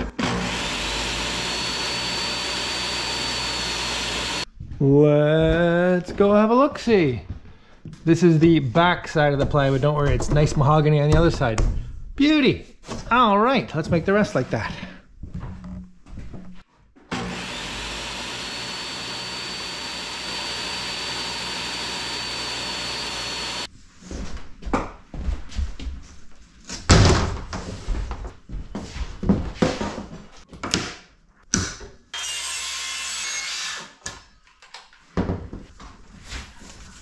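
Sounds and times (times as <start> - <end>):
circular saw cut: 0.0 - 4.5, 17.1 - 23.7, 32.2 - 34.0
table saw cutting with high whine: 0.0 - 4.5, 17.1 - 23.7, 32.2 - 33.9.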